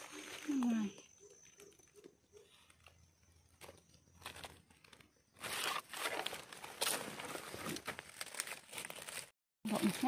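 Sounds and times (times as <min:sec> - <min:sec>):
dry leaves rustling and crunching: 0:00.0 - 0:00.9, 0:03.7 - 0:10.0.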